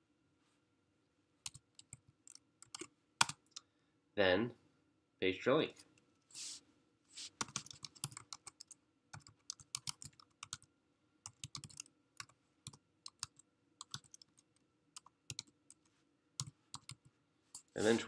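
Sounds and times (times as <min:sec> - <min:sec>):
computer keyboard typing: 0:01.4 - 0:03.6, 0:07.4 - 0:15.8, 0:16.4 - 0:17.7.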